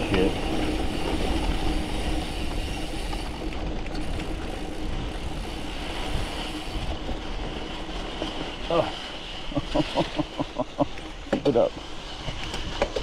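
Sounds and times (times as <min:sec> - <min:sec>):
wind buffeting microphone: 0:00.0 - 0:09.0
bike tyres rumbling on gravel: 0:00.0 - 0:13.0.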